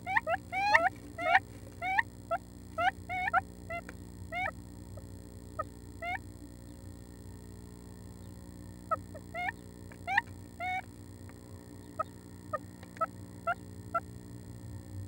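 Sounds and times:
woodpecker call notes: 0.0 - 6.8, 8.2 - 11.0, 11.7 - 14.1.

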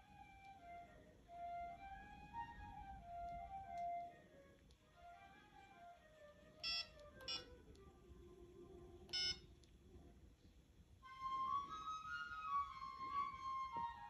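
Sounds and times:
soft music with flute melody: 0.0 - 9.0, 11.0 - 14.0
phone keypress beeps: 6.6 - 7.5, 9.1 - 9.4.

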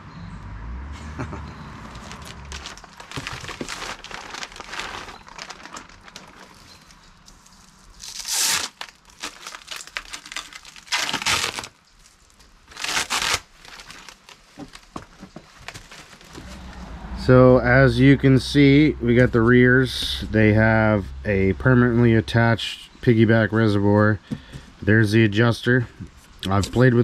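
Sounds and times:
plastic packaging crinkling: 1.8 - 16.7
plastic tearing: 1.9 - 16.6.

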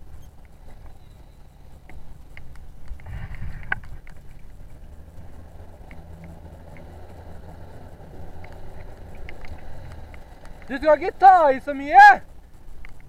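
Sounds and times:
outboard motor humming: 0.0 - 13.0.

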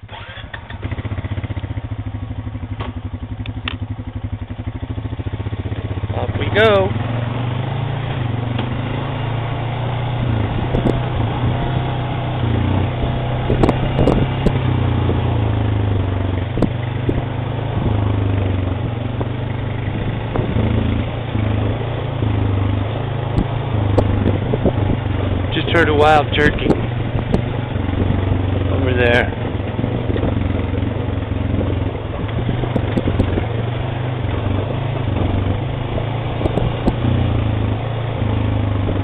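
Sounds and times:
atv engine running: 0.0 - 39.0.

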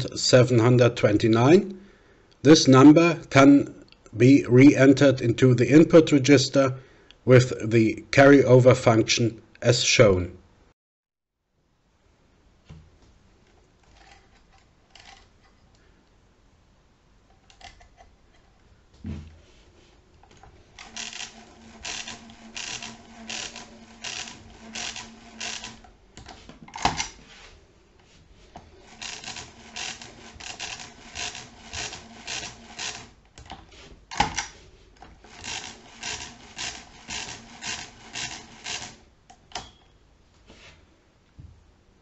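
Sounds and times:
mechanical calculator crank clatter: 20.6 - 25.9, 26.7 - 27.2, 28.7 - 33.5, 34.1 - 39.1.

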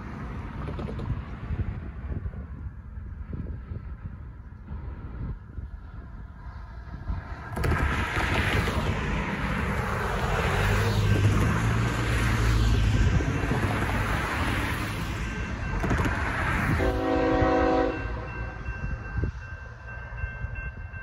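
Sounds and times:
cars passing tyre noise: 0.0 - 19.3
locomotive horn chord: 16.7 - 18.7.

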